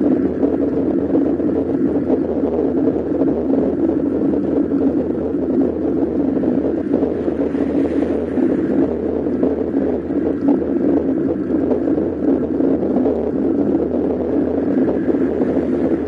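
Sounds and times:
wind and road noise: 0.0s - 16.0s.

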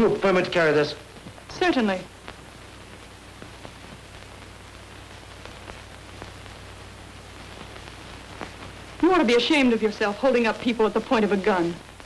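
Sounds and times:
faint crackles: 0.0s - 12.0s
film soundtrack hiss: 0.0s - 12.0s.

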